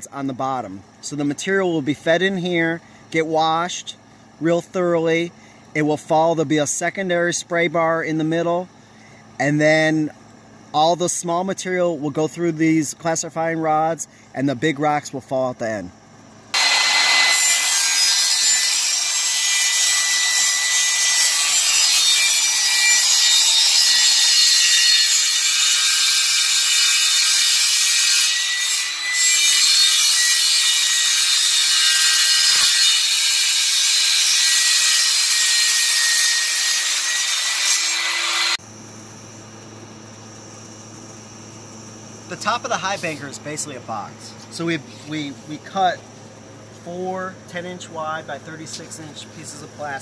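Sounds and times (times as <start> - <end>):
table saw cutting plastic: 16.6 - 38.6.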